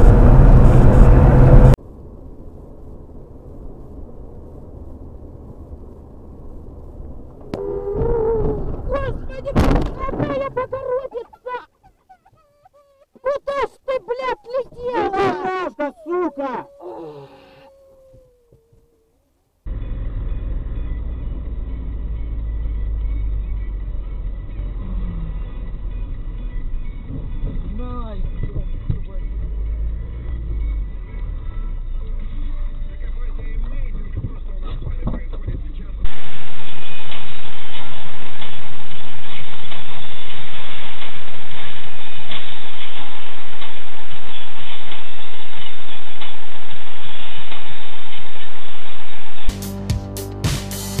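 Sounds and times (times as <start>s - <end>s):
vehicle road and engine noise: 0.0s - 11.0s, 19.4s - 51.0s
muffled low vehicle rumble: 0.0s - 13.4s, 14.1s - 49.5s.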